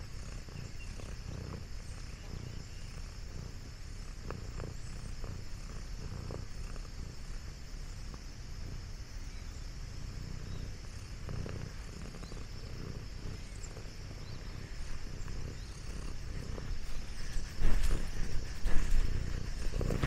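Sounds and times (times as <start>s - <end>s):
cat purring: 0.0s - 20.0s
bumps and rustles: 16.2s - 20.0s.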